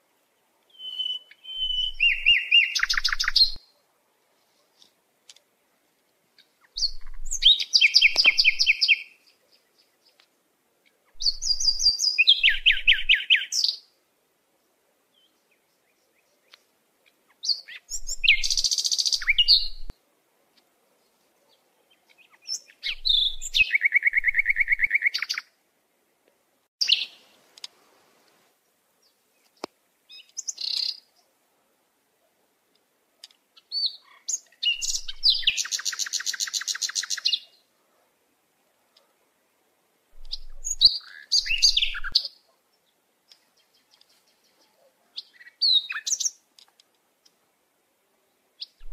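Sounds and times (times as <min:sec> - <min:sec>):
songbird trilling: 0:00.7 - 0:03.6, 0:11.2 - 0:13.8, 0:17.4 - 0:19.9, 0:22.2 - 0:25.4, 0:33.7 - 0:37.5, 0:40.2 - 0:42.3
bird chirps: 0:00.7 - 0:03.8, 0:06.4 - 0:10.3, 0:11.1 - 0:13.9, 0:17.3 - 0:19.9, 0:21.0 - 0:25.5, 0:26.8 - 0:27.4, 0:29.0 - 0:31.3, 0:33.6 - 0:37.6, 0:40.2 - 0:46.4, 0:48.6 - 0:48.9.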